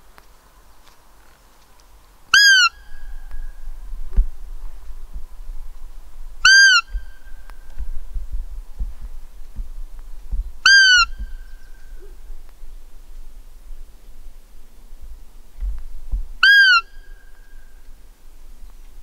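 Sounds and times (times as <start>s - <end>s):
deer call squeaks: 2.3s - 3.0s, 6.4s - 7.1s, 10.6s - 11.2s, 16.4s - 17.2s.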